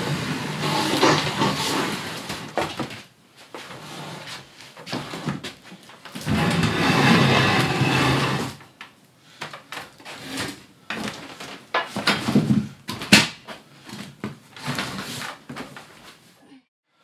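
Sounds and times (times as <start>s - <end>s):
wood scraping on concrete floor: 0.0s - 3.0s, 3.6s - 8.7s.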